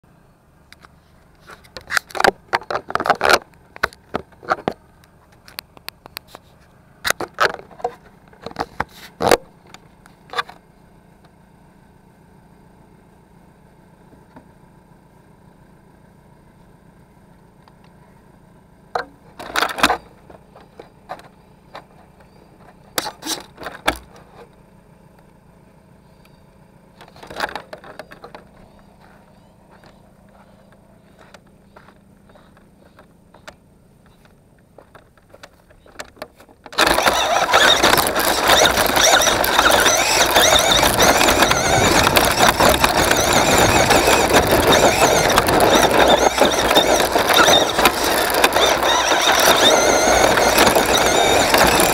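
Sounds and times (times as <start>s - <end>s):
rattling and scraping on plastic: 0.8s - 10.6s, 19.0s - 24.6s, 27.0s - 51.9s.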